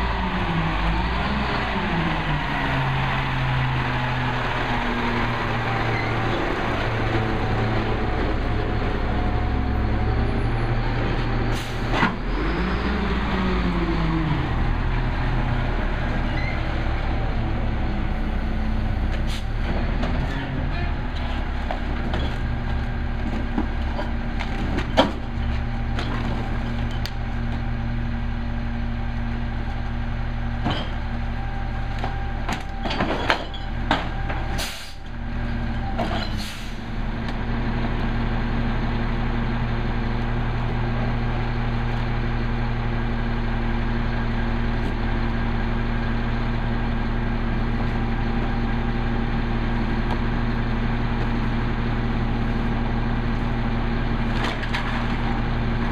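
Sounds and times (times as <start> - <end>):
diesel truck engine idling: 0.0 - 21.6
carts and recyclables clattering: 31.8 - 34.8, 54.2 - 55.9.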